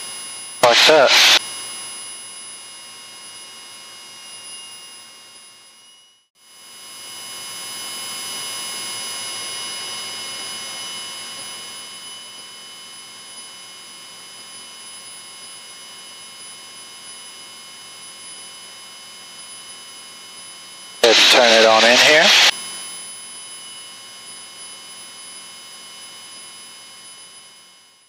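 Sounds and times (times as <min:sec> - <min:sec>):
electrical hum: 0:00.6 - 0:01.4, 0:21.0 - 0:22.5.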